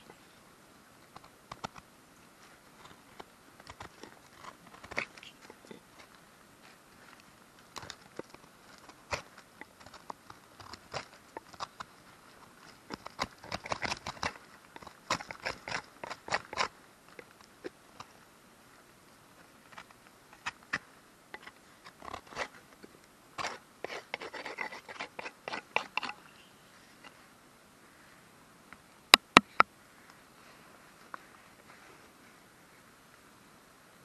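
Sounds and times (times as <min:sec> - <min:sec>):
knife carving wood: 0:02.8 - 0:05.8, 0:07.7 - 0:18.1, 0:19.7 - 0:22.6, 0:23.4 - 0:27.2.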